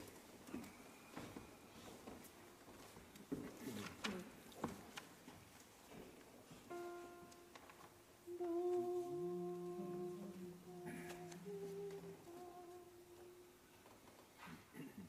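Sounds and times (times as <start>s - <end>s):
men's choir humming: 8.3s - 13.5s.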